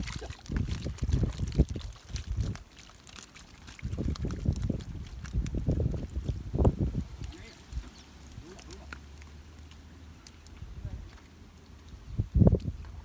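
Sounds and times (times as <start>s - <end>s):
fish flopping and splashing in water: 0.0s - 13.0s.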